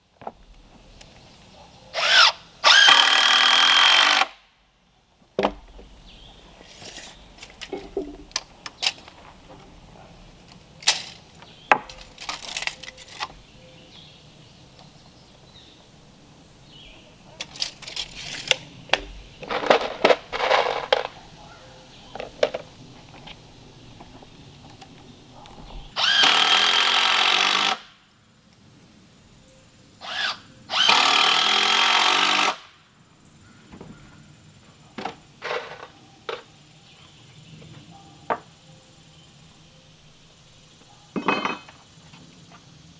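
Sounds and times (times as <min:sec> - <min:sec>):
cordless drill driving screws: 0:02.0 - 0:04.4, 0:26.0 - 0:27.8, 0:30.0 - 0:32.6
screws clattering in plastic box: 0:19.4 - 0:21.2.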